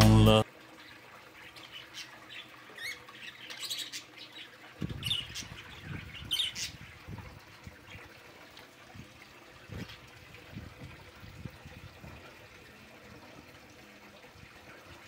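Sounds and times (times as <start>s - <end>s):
caged birds chirping: 0.9s - 8.3s.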